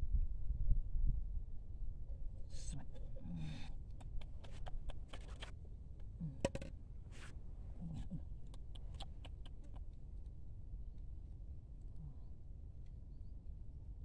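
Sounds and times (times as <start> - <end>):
low vocal sounds: 2.5 - 5.4, 6.0 - 6.7, 7.7 - 9.9.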